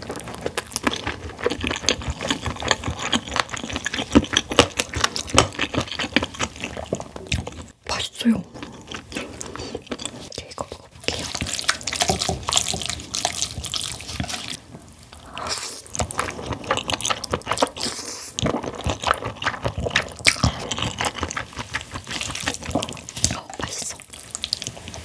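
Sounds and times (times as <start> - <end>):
noodles being slurped: 15.2 - 25.0.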